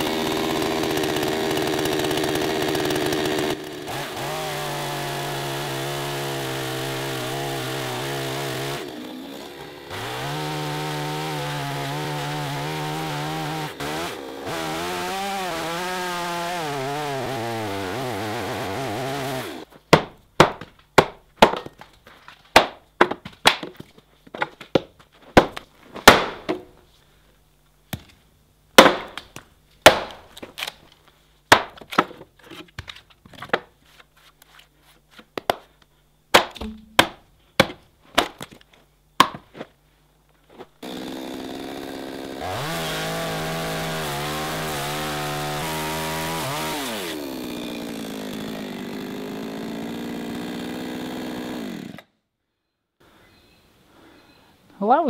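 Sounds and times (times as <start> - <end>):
chainsaw idling and revving: 0.0 - 19.7, 40.8 - 52.1.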